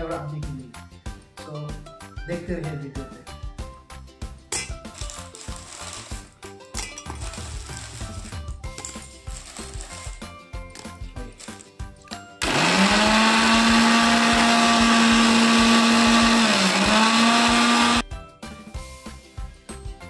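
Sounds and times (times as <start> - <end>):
mixer grinder motor whining: 12.4 - 18.0.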